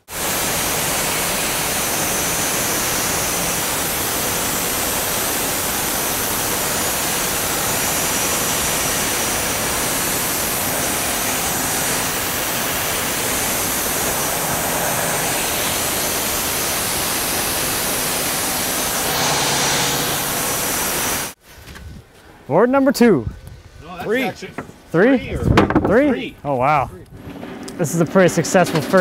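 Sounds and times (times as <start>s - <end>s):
band saw cutting log: 0.0s - 21.4s.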